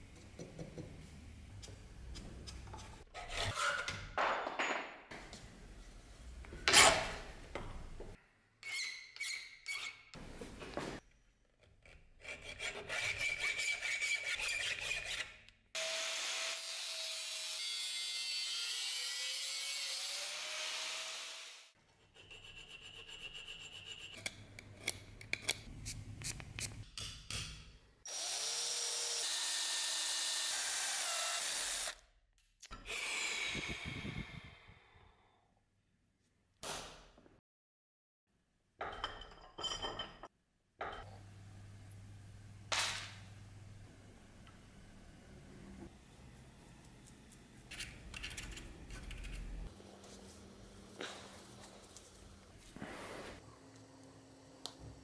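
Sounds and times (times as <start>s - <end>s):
hand tool scraping metal rod: 12.2s - 15.3s, 22.0s - 24.4s.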